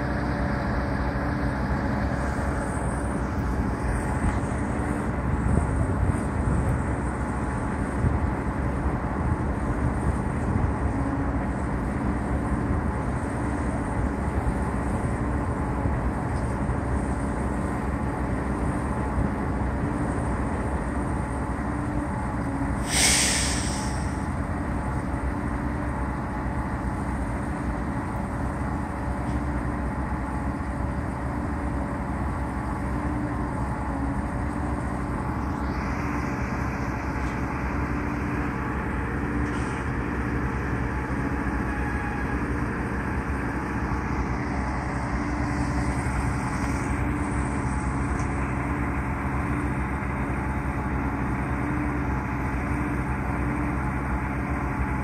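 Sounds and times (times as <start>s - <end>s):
large engine running: 0.0s - 55.0s
air hiss: 22.8s - 24.2s.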